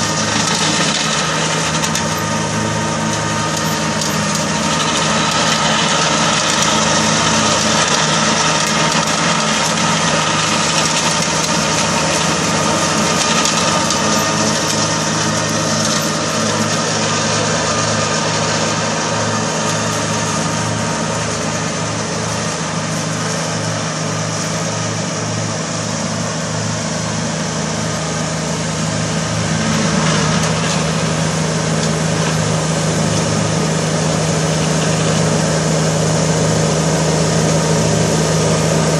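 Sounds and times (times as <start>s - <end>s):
rotary mower cutting weeds: 0.0s - 38.9s
tractor diesel engine running: 0.0s - 38.9s.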